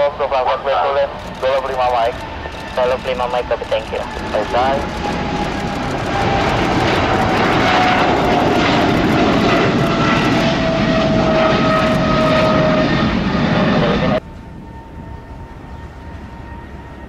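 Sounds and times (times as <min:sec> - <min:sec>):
jet airliner roaring at takeoff: 0:00.0 - 0:17.0.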